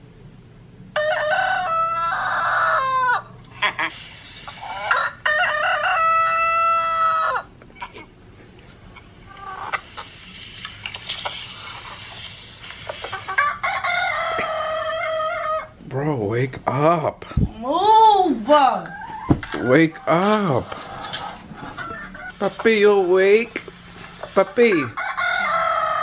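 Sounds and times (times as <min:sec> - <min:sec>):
rooster crowing through phone speaker: 0:04.9 - 0:07.5, 0:24.9 - 0:26.0.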